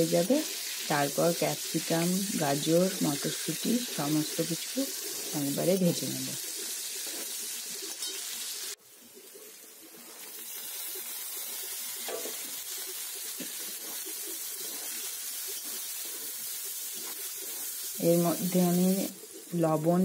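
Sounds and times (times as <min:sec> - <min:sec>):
onions sizzling in oil: 0:00.0 - 0:20.0
metal spatula stirring: 0:13.4 - 0:17.9.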